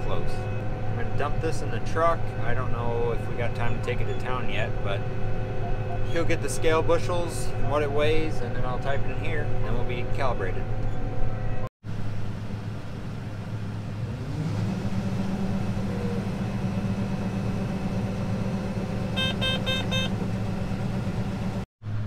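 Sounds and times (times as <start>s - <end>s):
combine engine and auger drone: 0.0s - 22.0s
short electronic beeps: 19.2s - 20.2s.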